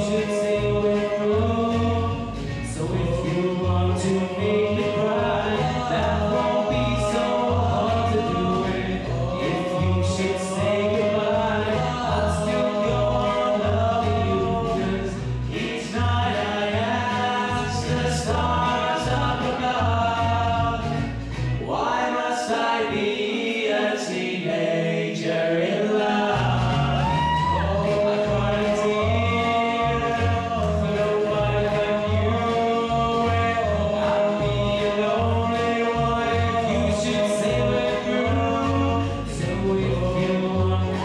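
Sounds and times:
backing music with pulsing bass: 0:00.0 - 0:21.9, 0:26.3 - 0:41.0
male trio singing in harmony: 0:00.0 - 0:41.0.

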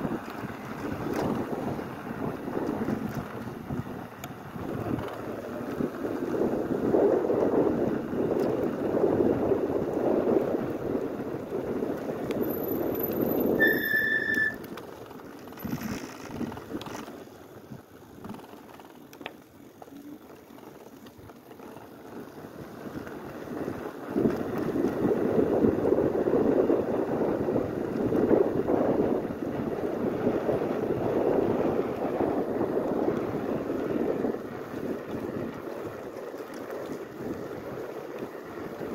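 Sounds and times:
wind buffeting microphone: 0:00.0 - 0:13.8, 0:21.1 - 0:38.9
bike brake squeal: 0:13.1 - 0:14.7.

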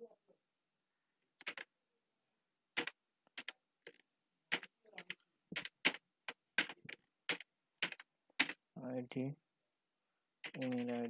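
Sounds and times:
computer keyboard keystrokes: 0:01.4 - 0:01.6, 0:04.5 - 0:08.6, 0:10.4 - 0:11.0.

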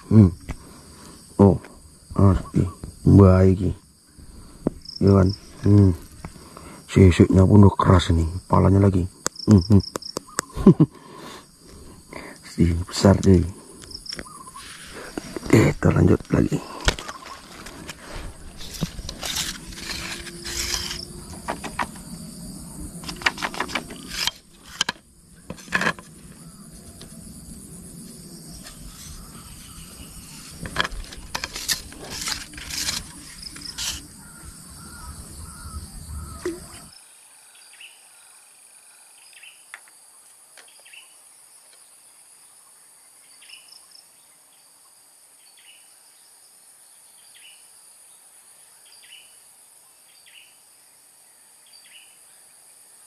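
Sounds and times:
high drone of insects: 0:00.0 - 0:53.0
handling rustling and clicks: 0:16.2 - 0:22.1, 0:23.0 - 0:26.4, 0:28.6 - 0:34.1.

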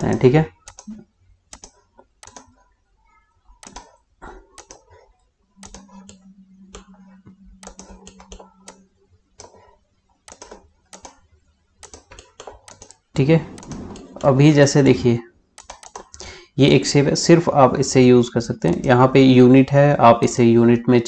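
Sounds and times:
computer keyboard tapping: 0:00.6 - 0:02.6, 0:03.6 - 0:04.0, 0:04.6 - 0:05.0, 0:05.6 - 0:08.8, 0:09.4 - 0:14.4, 0:15.6 - 0:16.2
mouse clicking: 0:00.6 - 0:02.6, 0:03.6 - 0:04.0, 0:04.6 - 0:05.0, 0:05.6 - 0:11.2, 0:11.8 - 0:14.4, 0:15.6 - 0:16.2, 0:18.6 - 0:18.9.

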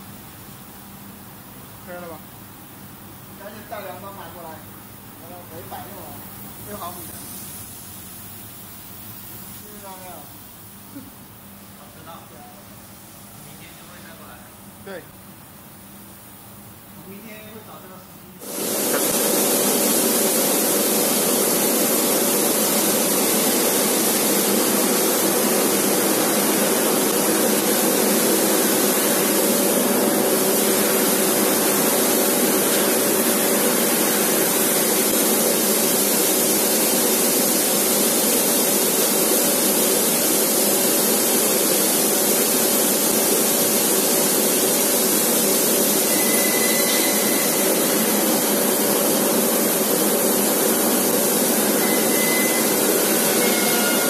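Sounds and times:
laser cutter gas jet hissing: 0:05.2 - 0:10.3, 0:18.4 - 0:54.0.

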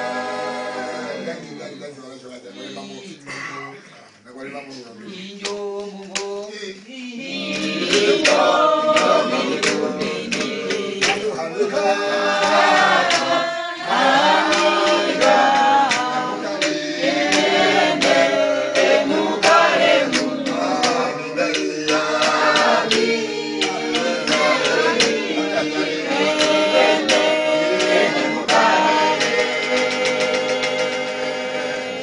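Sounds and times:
choir singing in harmony: 0:00.0 - 0:03.3, 0:05.0 - 0:32.0
sharp percussive strikes: 0:07.5 - 0:32.0.

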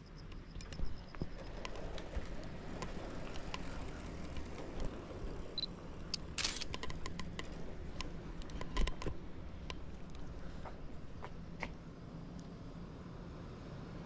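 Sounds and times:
street background noise: 0:00.0 - 0:14.0
camera shutter click: 0:06.4 - 0:06.7.

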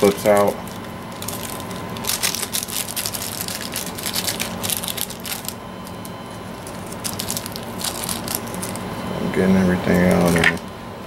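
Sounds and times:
plastic bag crinkling: 0:00.0 - 0:08.9.

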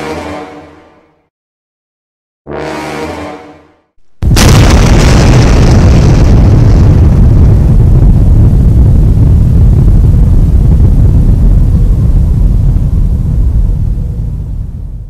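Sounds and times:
deep explosion rumble: 0:04.2 - 0:15.0.

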